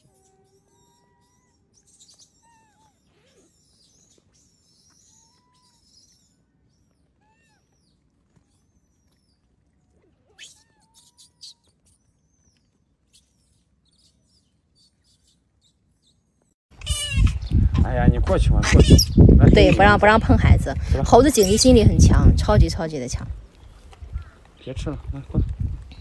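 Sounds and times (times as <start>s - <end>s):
bird chirps and whistled calls: 0.0s - 6.3s, 18.6s - 20.0s.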